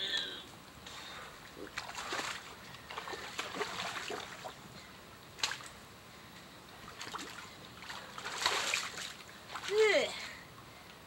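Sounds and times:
water splashing and sloshing: 0.9 - 5.8, 6.7 - 10.4.

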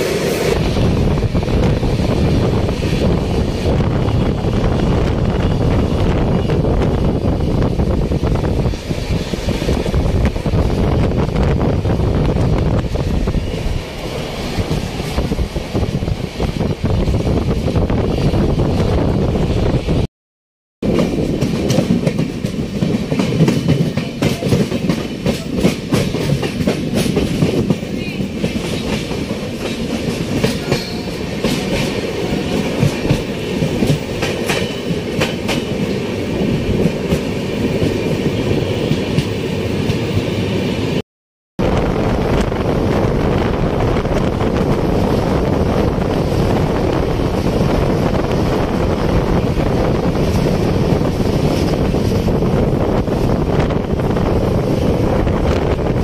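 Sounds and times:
rushing wind: 0.0 - 20.1, 20.8 - 41.0, 41.6 - 56.0
train wheels clattering on rails: 20.8 - 40.3, 44.0 - 56.0.

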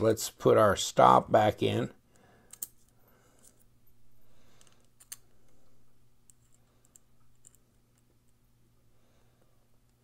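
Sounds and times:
low steady hum: 0.0 - 10.0
small metal clicks: 4.6 - 5.3.

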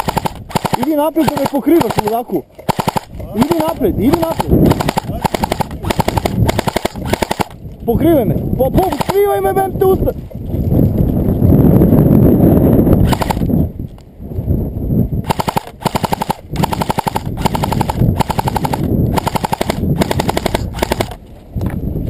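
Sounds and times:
airsoft rifle bursts: 0.0 - 7.6, 8.8 - 9.5, 13.0 - 13.4, 15.3 - 21.2.

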